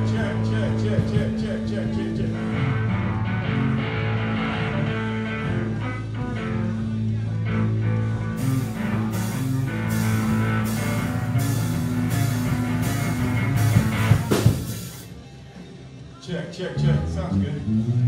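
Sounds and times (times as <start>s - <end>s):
rock band playing a riff: 2.2s - 15.1s.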